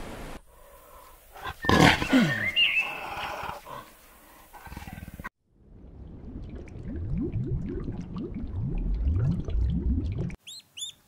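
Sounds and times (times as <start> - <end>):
underwater bubbling and gurgling: 5.7 - 10.4.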